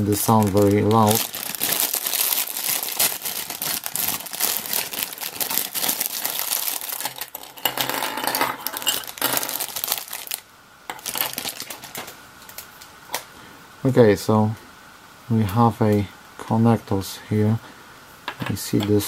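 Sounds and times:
plastic bag crinkling: 0.0 - 12.9
plastic parts shifting: 0.0 - 13.3.

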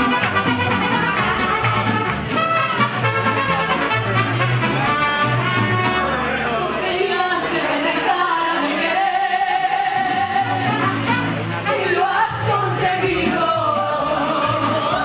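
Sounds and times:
mariachi band guitars: 0.0 - 15.0
women singing: 6.8 - 11.0, 11.6 - 15.0.

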